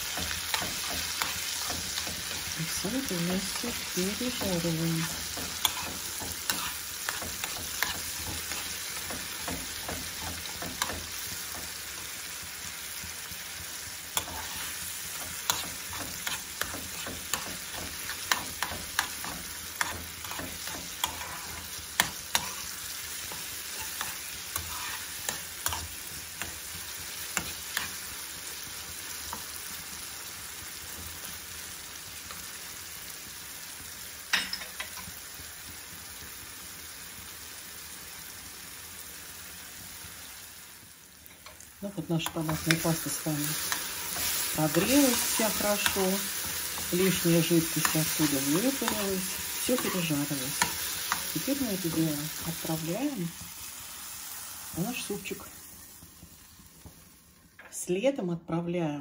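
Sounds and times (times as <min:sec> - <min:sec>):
spoon scraping a pan: 0:00.0 - 0:12.1, 0:14.1 - 0:28.2, 0:42.2 - 0:52.6
tomatoes sizzling in a frying pan: 0:00.0 - 0:59.0.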